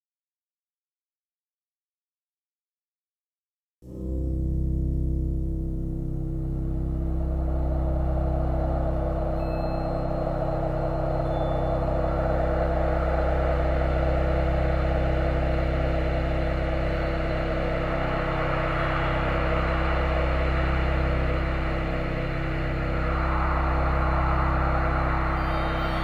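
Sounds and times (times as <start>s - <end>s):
dark low drone: 3.9s - 26.0s
hissing rumbling wash: 6.7s - 26.0s.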